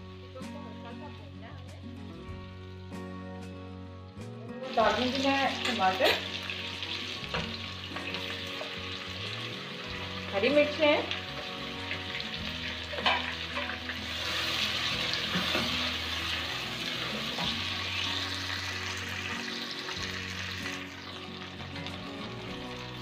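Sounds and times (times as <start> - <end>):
chicken sizzling in hot oil: 4.6 - 23.0.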